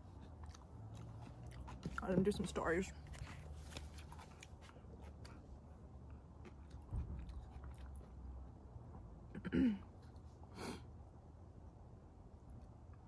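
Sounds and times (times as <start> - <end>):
person chewing: 0.0 - 2.1, 6.4 - 8.2.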